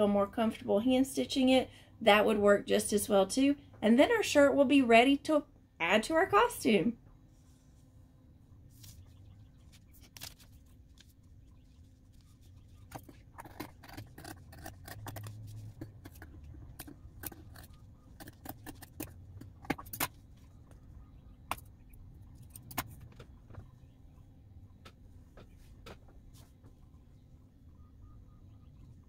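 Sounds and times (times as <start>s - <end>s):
paper rustling: 9.7s - 13.2s.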